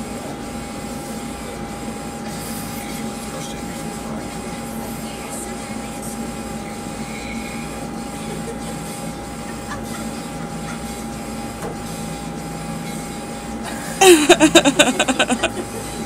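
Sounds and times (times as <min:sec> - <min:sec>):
steady background hum: 0:00.0 - 0:16.0
person laughing: 0:13.7 - 0:16.0.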